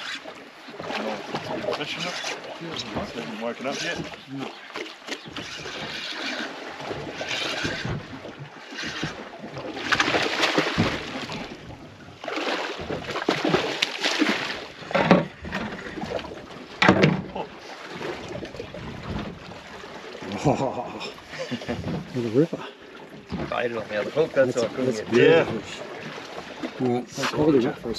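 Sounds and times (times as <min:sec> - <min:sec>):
water splashing against boat hull: 0:00.0 - 0:27.9
sharp knocks: 0:16.8 - 0:17.4.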